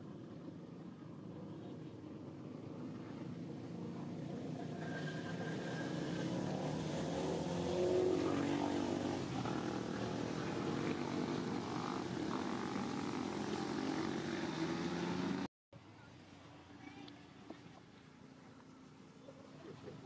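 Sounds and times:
engine running: 0.0s - 15.5s.

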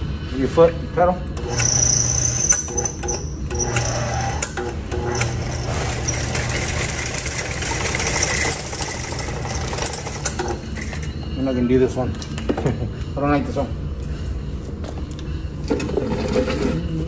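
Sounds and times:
drain cleaning machine running: 1.4s - 11.1s.

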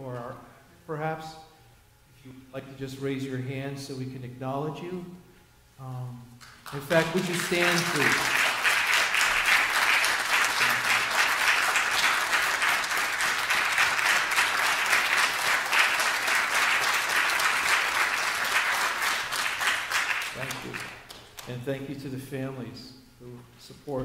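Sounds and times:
crowd applauding: 6.4s - 21.5s.

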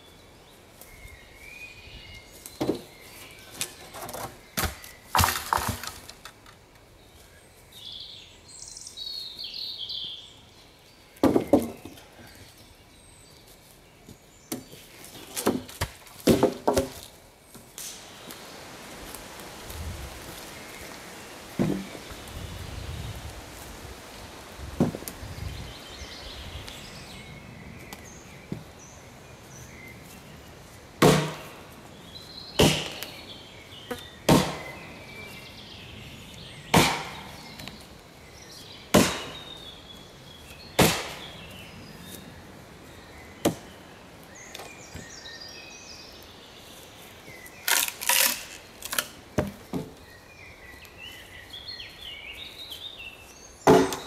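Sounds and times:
axe chopping wood: 4.1s - 6.3s, 15.3s - 17.1s, 31.0s - 31.6s, 32.6s - 33.2s, 34.3s - 34.8s, 36.7s - 37.3s, 38.9s - 39.5s, 40.8s - 41.2s, 43.4s - 43.7s, 53.6s - 54.0s.

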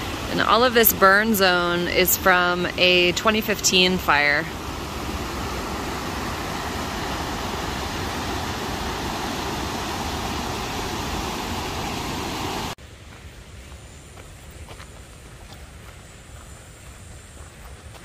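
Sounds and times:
creek water rushing: 0.0s - 12.8s
footsteps on dirt path: 12.8s - 18.0s.

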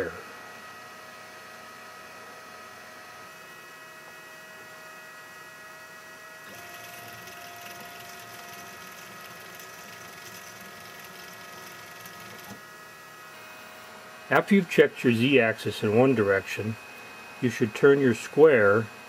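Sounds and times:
cooling fan hum: 0.0s - 19.0s
stepper motor whirring: 6.5s - 12.6s.

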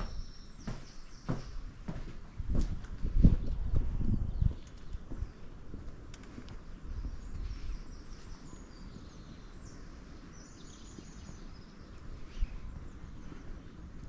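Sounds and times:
footsteps on paved path: 0.0s - 8.3s
songbirds singing: 0.0s - 14.0s.

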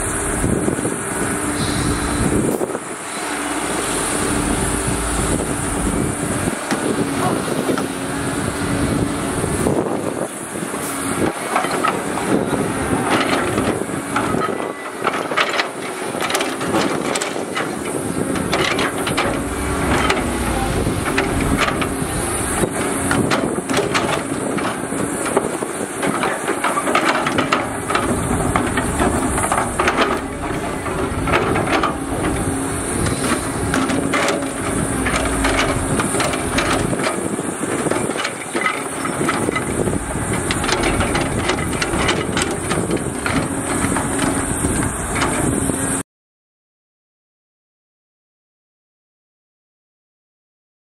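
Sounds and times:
dump truck engine running: 0.0s - 46.0s
excavator diesel engine running: 0.0s - 46.0s
short knocks and clatters: 13.1s - 45.5s.

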